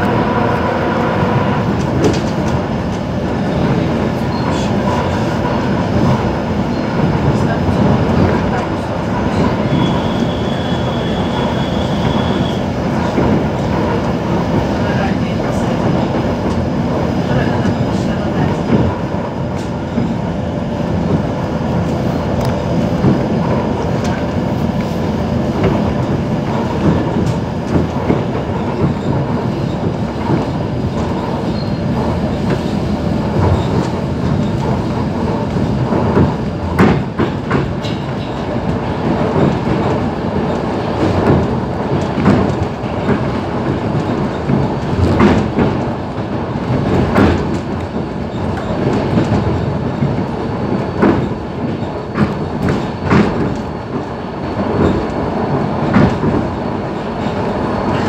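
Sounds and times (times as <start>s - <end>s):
train wheels rumbling on track: 0.0s - 58.0s
wheels clacking over rail joints: 25.6s - 58.0s.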